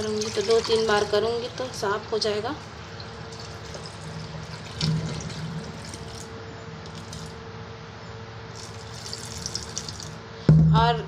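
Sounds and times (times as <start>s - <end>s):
water trickling into a steel sink: 0.0s - 6.3s, 6.9s - 7.4s, 8.6s - 10.2s.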